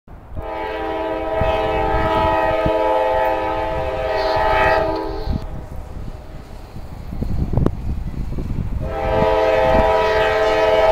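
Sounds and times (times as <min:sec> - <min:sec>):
train air horn blast: 0:00.4 - 0:05.6, 0:08.8 - 0:10.9.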